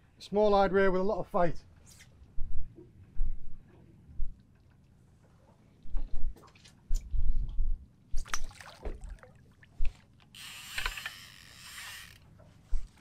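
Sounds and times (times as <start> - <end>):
fish splashing at water surface: 8.1 - 9.9
low bumps of rod and reel: 9.8 - 13.0
fishing reel clicks: 10.3 - 12.2.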